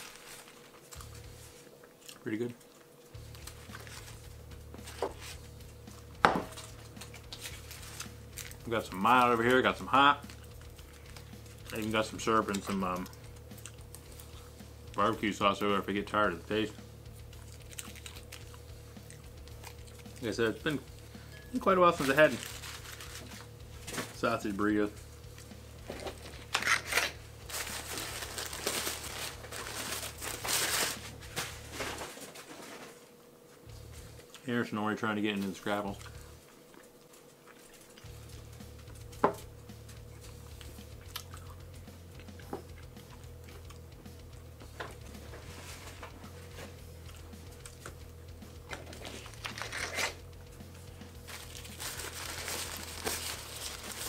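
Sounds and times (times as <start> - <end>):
paper wrapper crinkling: 0.0 - 5.4, 6.6 - 13.2, 21.5 - 24.5, 25.9 - 33.0, 48.8 - 50.2, 51.2 - 54.0
steady low hum: 0.0 - 54.0
flip cards clattering: 25.9 - 32.3, 48.7 - 50.2.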